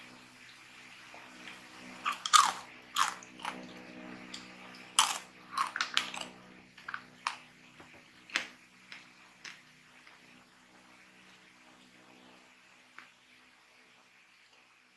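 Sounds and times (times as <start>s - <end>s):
coated nuts crunching: 2.0s - 3.6s, 4.3s - 7.4s.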